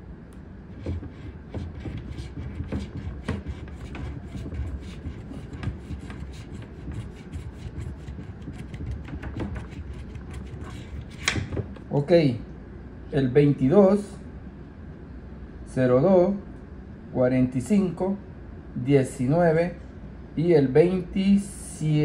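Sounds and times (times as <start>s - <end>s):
coin scratching lottery ticket: 0.8s - 11.7s.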